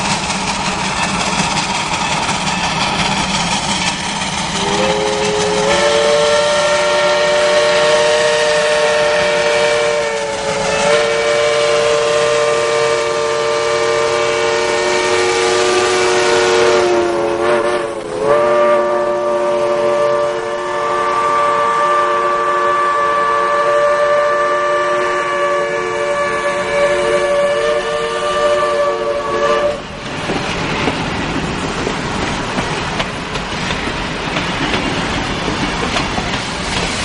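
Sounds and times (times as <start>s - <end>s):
train running noise: 0.0s - 37.0s
steam locomotive whistle: 4.5s - 30.0s.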